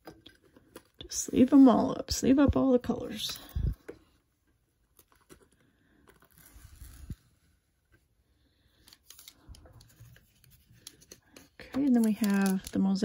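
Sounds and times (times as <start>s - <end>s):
cards clicking into plastic stands: 10.8s - 12.8s.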